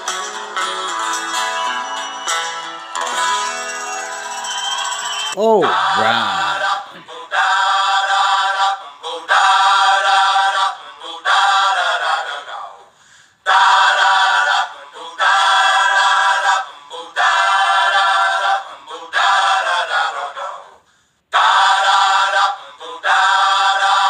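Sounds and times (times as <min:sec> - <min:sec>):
choir-like sung vocals: 0:05.4 - 0:24.0.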